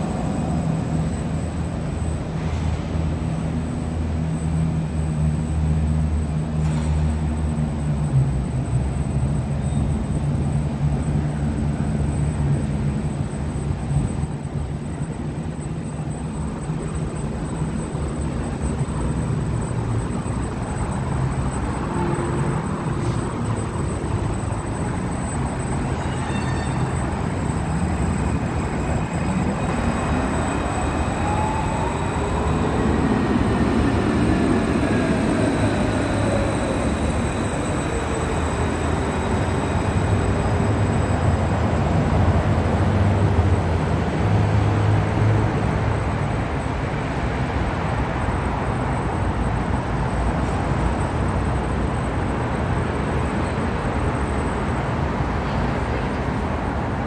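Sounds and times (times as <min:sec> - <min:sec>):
electric drive whine: 0:00.0 - 0:43.8
tram wheels rumbling on rails: 0:00.0 - 0:57.0.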